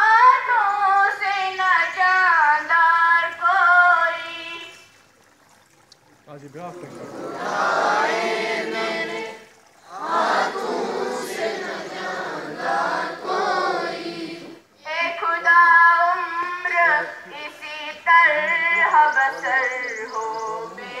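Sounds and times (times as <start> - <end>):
children singing in unison: 7.0 - 14.7, 20.5 - 21.0.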